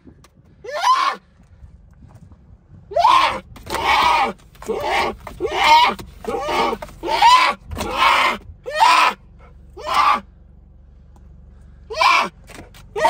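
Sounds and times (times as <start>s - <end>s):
bear cub bawling: 2.9s - 10.2s, 11.9s - 12.4s.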